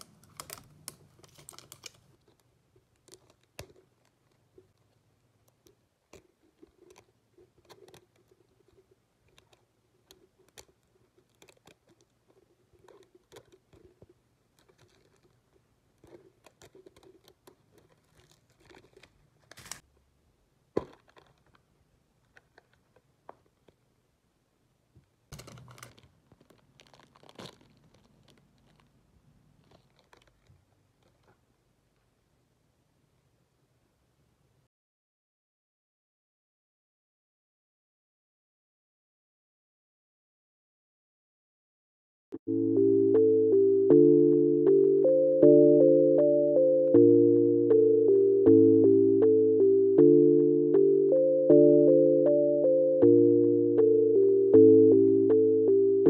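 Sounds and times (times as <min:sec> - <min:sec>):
plastic wrapper crinkling: 0:00.0 - 0:04.9, 0:05.5 - 0:19.9, 0:20.8 - 0:23.8, 0:25.3 - 0:31.4.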